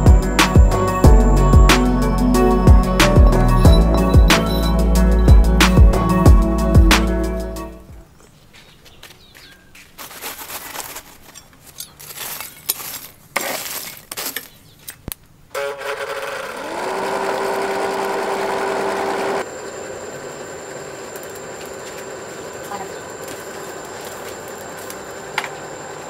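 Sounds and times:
forge blower whine: 0:00.0 - 0:08.0, 0:15.5 - 0:26.0
charcoal and metal tools clattering: 0:03.4 - 0:05.9, 0:09.9 - 0:15.0.

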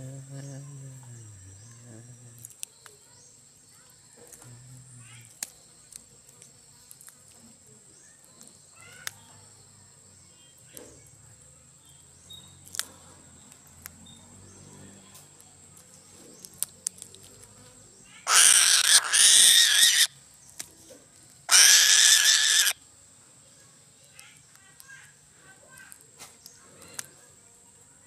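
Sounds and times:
faint ticks: 0:00.0 - 0:03.0, 0:03.8 - 0:07.6
eagle screaming calls: 0:18.3 - 0:20.1, 0:21.5 - 0:22.8.

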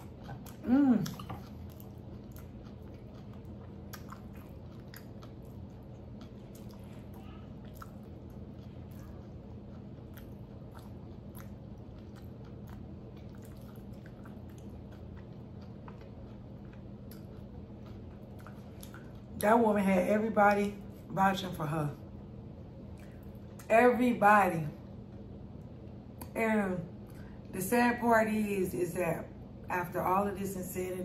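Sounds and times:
person chewing food: 0:00.0 - 0:19.5, 0:22.7 - 0:23.7
steady low hum: 0:00.0 - 0:31.0.

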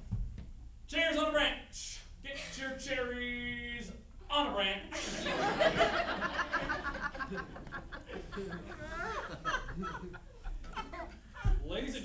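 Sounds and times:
audience laughing: 0:05.0 - 0:11.5.

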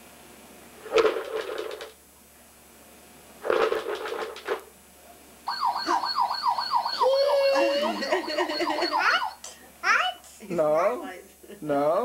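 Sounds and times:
toy siren wailing: 0:05.5 - 0:09.4
thin steady high tone: 0:05.5 - 0:09.5.

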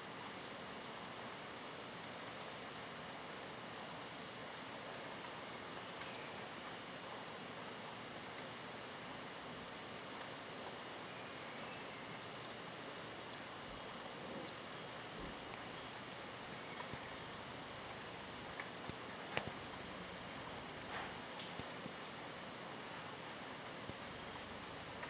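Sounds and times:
watch alarm beeping: 0:13.5 - 0:17.1.

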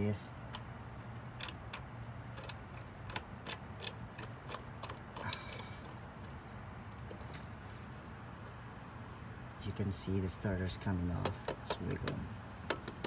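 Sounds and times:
steady low hum: 0:00.0 - 0:13.0
light metallic clicks and taps: 0:11.2 - 0:13.0.

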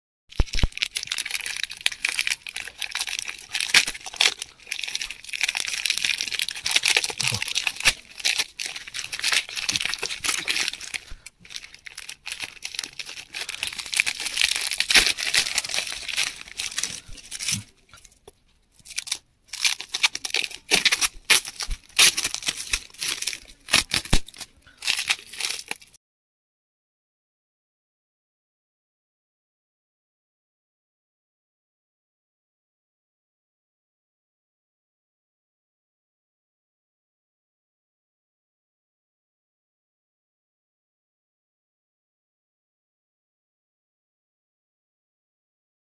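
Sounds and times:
plastic mailer bag tearing: 0:00.3 - 0:17.7, 0:18.8 - 0:25.9
bubble wrap rustling: 0:00.3 - 0:26.0.

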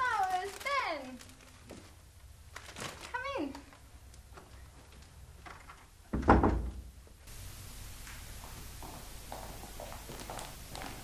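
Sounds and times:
faint low hum: 0:00.0 - 0:11.0
door shutting with heavy thud: 0:06.1 - 0:06.9.

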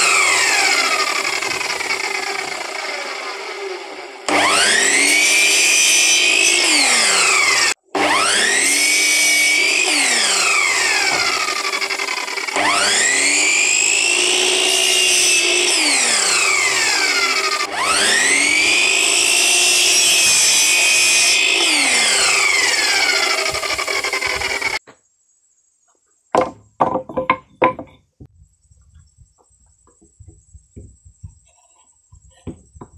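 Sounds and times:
miter saw motor whining: 0:00.0 - 0:24.8
wooden knocks on slab: 0:26.4 - 0:28.0.

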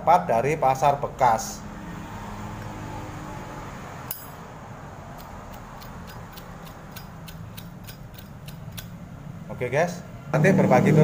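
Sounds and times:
lighter flint wheel strikes: 0:05.2 - 0:09.0.

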